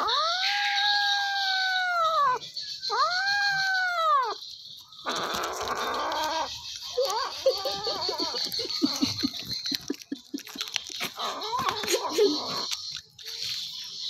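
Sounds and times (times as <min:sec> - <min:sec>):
kitten growl-wailing: 0:00.0 - 0:04.4.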